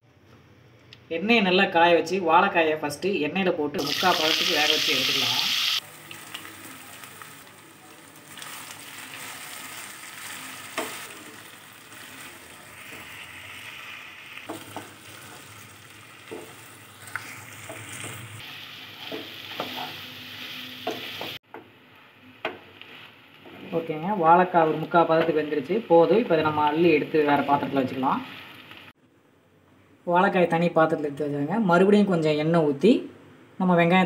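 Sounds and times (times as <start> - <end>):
food sizzling in hot oil: 3.8 - 21.4, 22.0 - 29.0
spatula knocking and scraping pan: 14.4 - 15.4, 16.2 - 18.3, 19.0 - 20.0, 20.8 - 21.7.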